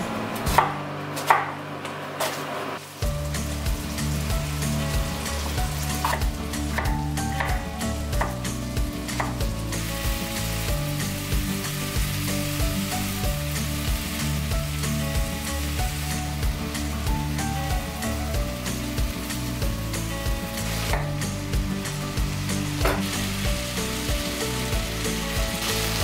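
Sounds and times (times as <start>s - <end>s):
background music with low notes: 0.0s - 2.0s, 2.8s - 26.0s
sizzling hiss: 8.6s - 26.0s.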